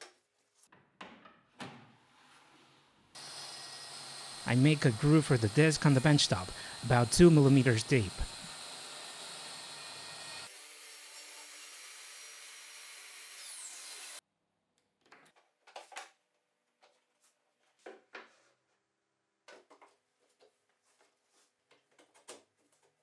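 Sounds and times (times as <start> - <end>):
circular saw whining: 3.2 - 11.8.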